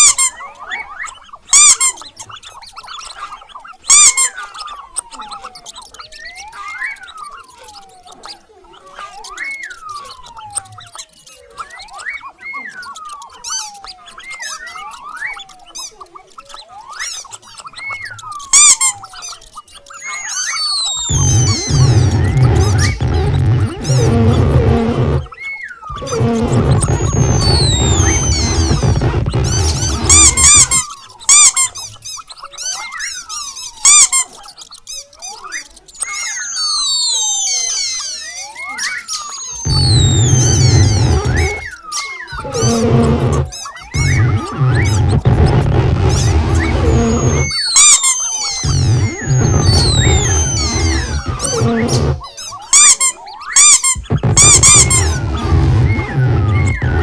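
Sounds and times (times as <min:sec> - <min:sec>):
high cartoon mouse squeaks: 0:00.0 - 0:57.0
sliding whistle-like tones: 0:00.0 - 0:57.0
high chirps: 0:20.0 - 0:31.9, 0:39.2 - 0:57.0.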